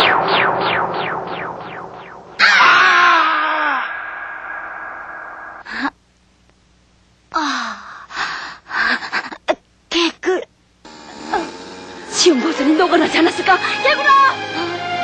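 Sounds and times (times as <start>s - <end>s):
rush of noise: 0.0s - 5.7s.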